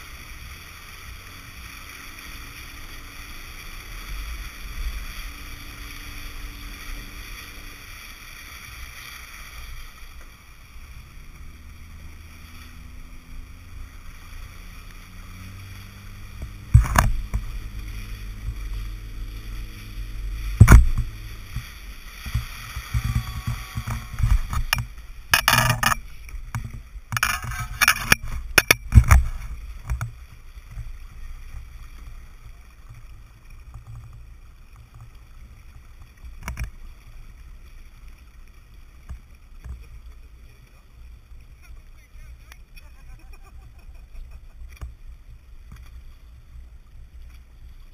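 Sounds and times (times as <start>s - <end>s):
water rushing along a hull: 0.0s - 47.9s
splashing and clattering: 15.3s - 36.8s
wind on microphone: 15.4s - 32.2s.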